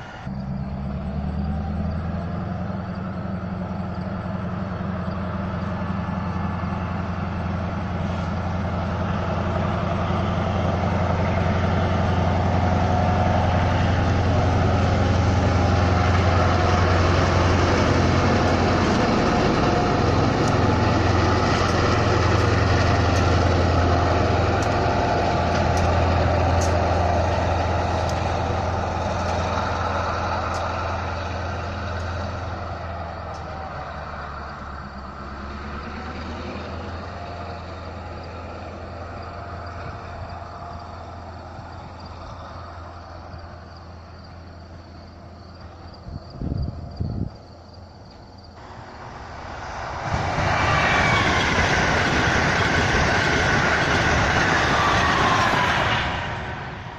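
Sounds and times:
diesel locomotive engine drone: 0:00.0 - 0:56.9
faint sharp ticks: 0:24.6 - 0:24.8, 0:28.0 - 0:28.2.

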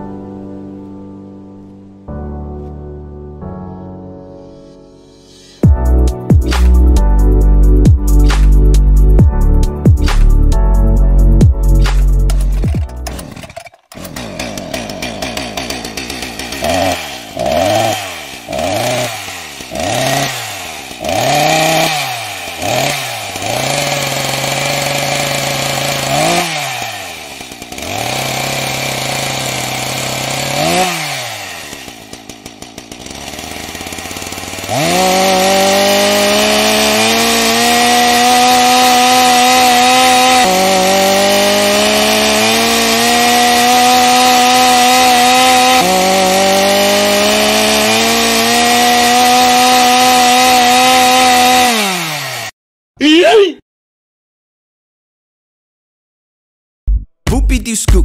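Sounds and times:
chainsaw engine revving: 0:11.8 - 0:52.6.

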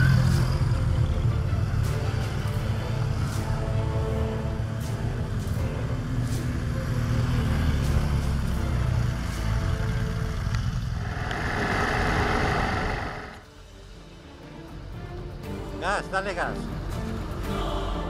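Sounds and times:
motorcycle engines passing: 0:00.0 - 0:13.4
wind rush while riding: 0:10.4 - 0:13.4.

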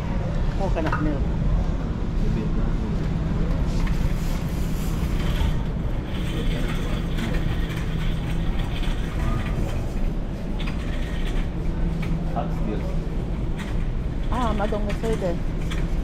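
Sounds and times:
steady low hum: 0:00.0 - 0:16.0
shopping cart rattling: 0:04.2 - 0:11.6, 0:13.5 - 0:16.0.

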